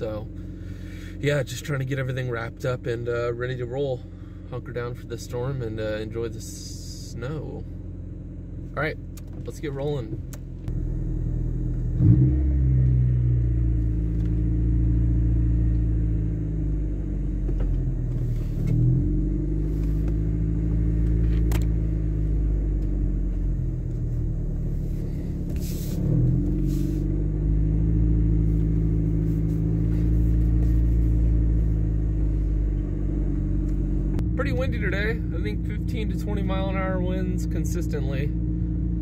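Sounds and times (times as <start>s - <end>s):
road noise: 7.2s - 39.0s
car engine accelerating: 9.1s - 39.0s.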